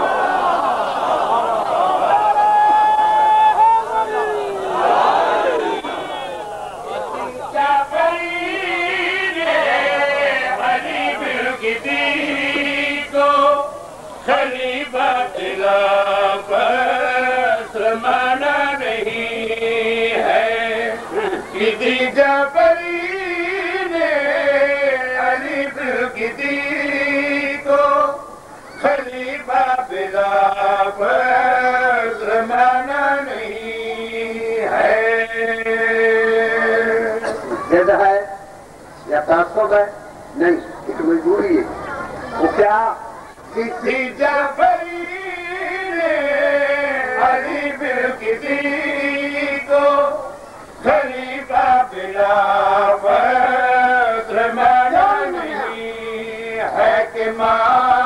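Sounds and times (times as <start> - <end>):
man chanting: 42.5 - 58.0.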